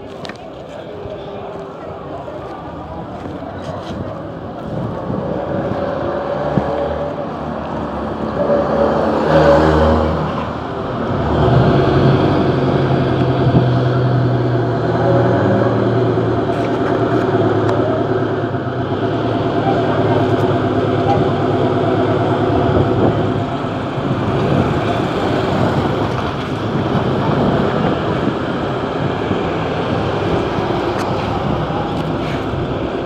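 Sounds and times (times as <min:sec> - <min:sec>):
vehicle engine running: 0:10.0 - 0:33.0.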